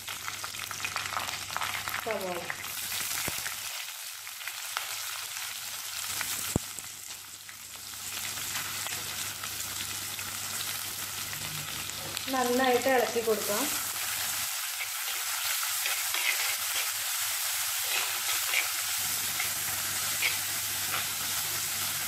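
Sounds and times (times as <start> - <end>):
oil sizzling and crackling: 0.0 - 22.0.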